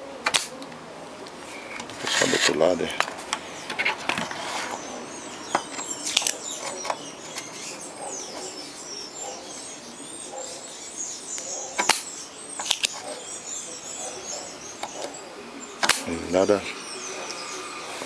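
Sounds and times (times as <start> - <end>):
birds chirping faintly: 0.0 - 18.0
desoldering pump snapping: 0.2 - 2.3, 11.8 - 13.0.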